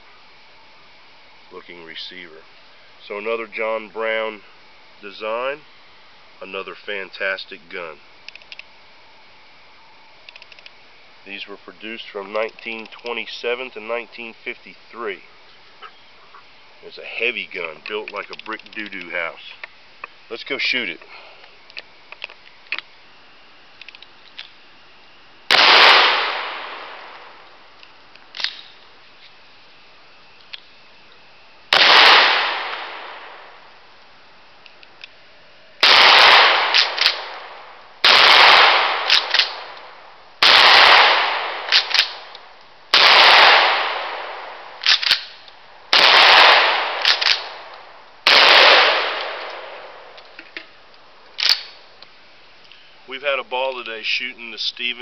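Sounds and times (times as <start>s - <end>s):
shotgun shots with echo: 25.5s - 27.4s, 31.7s - 33.5s, 35.8s - 39.8s, 40.4s - 42.2s, 42.9s - 45.2s, 45.9s - 50.2s
shotgun slide clacking: 44.8s - 45.4s, 51.4s - 51.8s.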